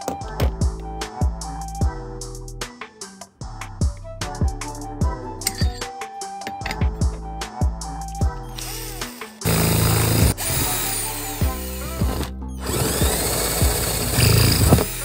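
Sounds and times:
background music with beat: 0.0s - 15.0s
power drill boring metal: 8.6s - 15.0s.

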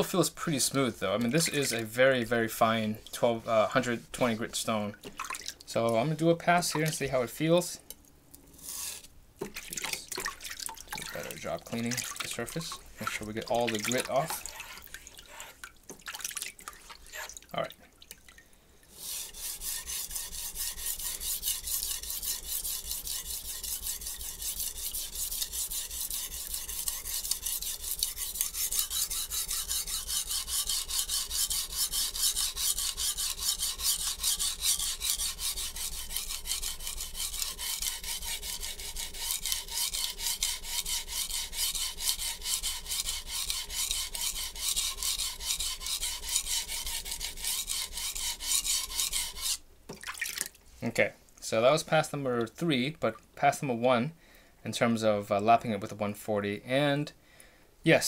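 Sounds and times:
knife scraping on a whetstone: 8.5s - 9.1s, 12.2s - 15.6s, 16.9s - 17.4s, 19.0s - 49.6s.

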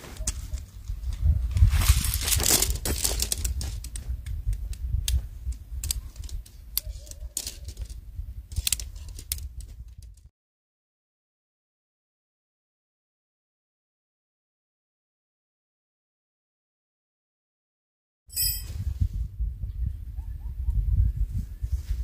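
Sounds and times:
nylon bag rustling: 0.0s - 3.9s
tent pole sections clicking: 0.0s - 10.2s.

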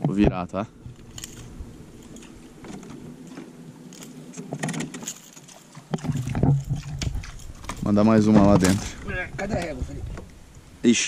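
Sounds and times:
knocks and handling noise: 0.1s - 10.3s
electric boat motor humming: 0.7s - 5.4s
metallic clinks and rattles of gear: 0.9s - 9.0s.

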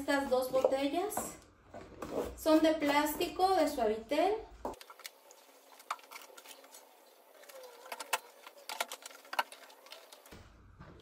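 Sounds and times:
plastic bottles clicking: 7.4s - 10.3s.

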